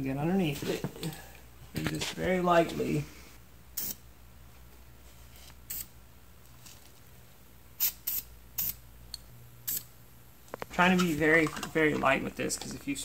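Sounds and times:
spray paint can hissing: 7.8 - 8.8, 9.7 - 9.9.

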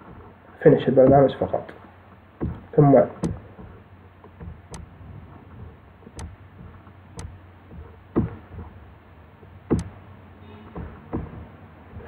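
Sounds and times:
dull knocks: 1.0 - 1.5, 2.4 - 8.9, 9.7 - 10.0, 10.7 - 12.0.

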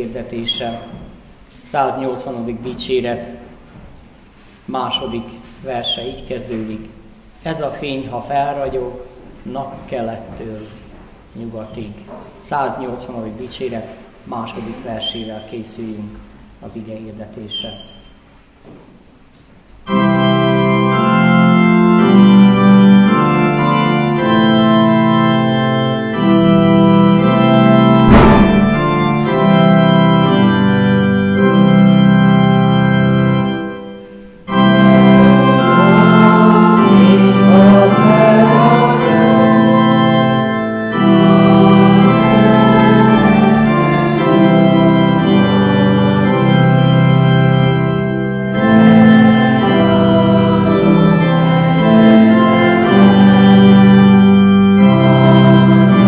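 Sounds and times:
church organ playing hymn: 0.0 - 1.2, 19.8 - 56.0.

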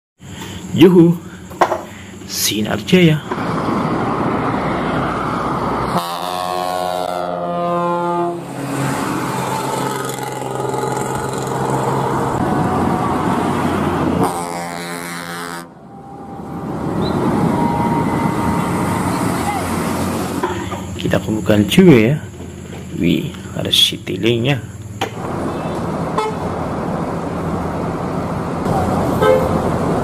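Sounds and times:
engine and traffic noise: 0.2 - 30.0
bus air horn blasts: 5.8 - 8.7, 9.6 - 12.3, 13.6 - 19.4, 26.1 - 26.5, 29.1 - 29.7.

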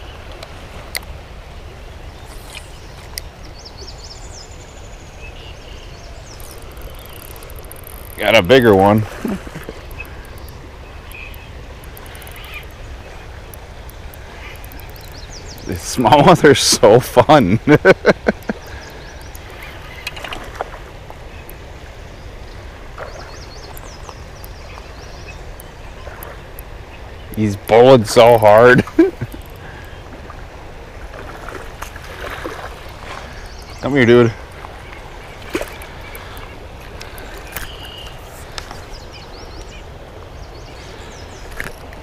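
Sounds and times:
river riffle running: 0.0 - 42.0
faint clicks: 6.3 - 8.2, 9.5 - 12.8, 13.5 - 15.7, 18.3 - 21.6, 25.5 - 27.8, 29.2 - 30.0, 34.4 - 40.3
bird chirps: 9.8 - 13.2, 34.8 - 41.6
high bird chirps: 9.9 - 12.8.

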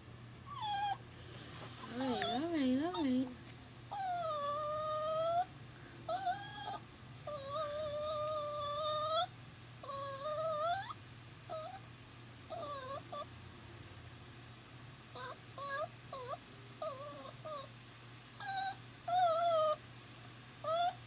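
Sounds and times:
puppy crying and whining: 0.5 - 1.0, 1.8 - 3.3, 3.9 - 5.5, 6.1 - 11.9, 12.5 - 13.3, 15.1 - 17.8, 18.4 - 19.8, 20.6 - 21.0.

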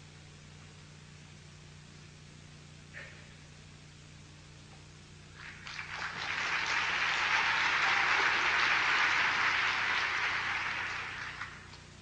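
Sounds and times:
large audience applauding: 5.4 - 11.8.

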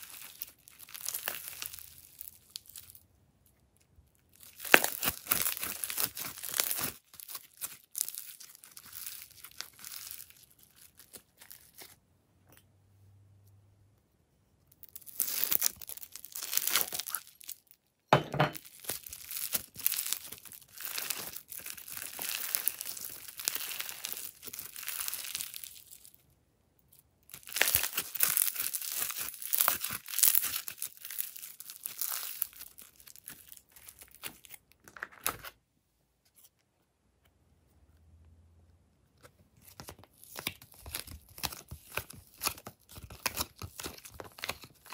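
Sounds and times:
slime crackling and crunching: 0.0 - 3.0, 4.1 - 12.0, 14.8 - 17.8, 18.6 - 26.3, 26.9 - 35.6, 39.6 - 44.9.

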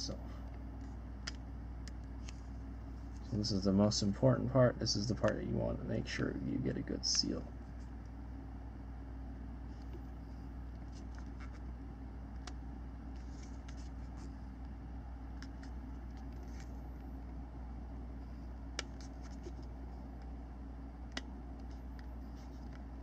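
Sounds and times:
steady low hum: 0.0 - 23.0
tape crackling: 9.6 - 17.4, 18.2 - 23.0.

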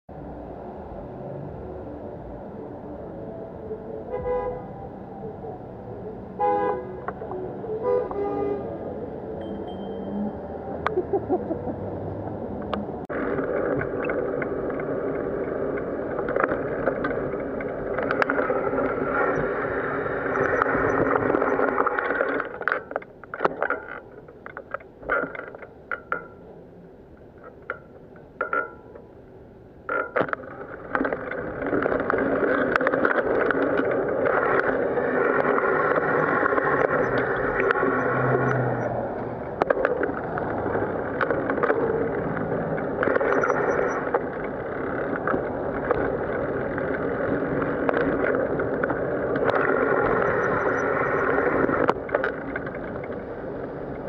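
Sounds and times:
wind and road noise: 0.1 - 54.0
bicycle clicks and rattles: 12.6 - 26.4, 27.2 - 29.0, 29.8 - 38.2, 39.4 - 54.0.

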